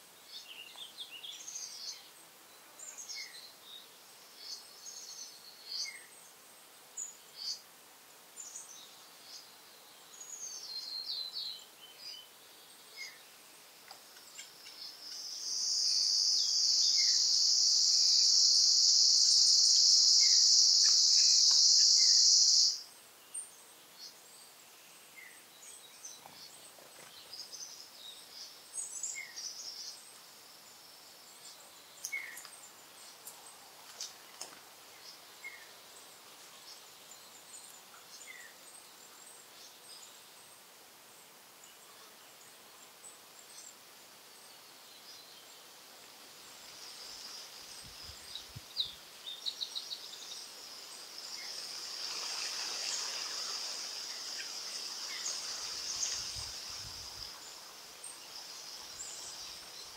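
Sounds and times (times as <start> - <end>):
insect high buzz: 0.2 - 59.9
bird chirps: 14.3 - 22.8.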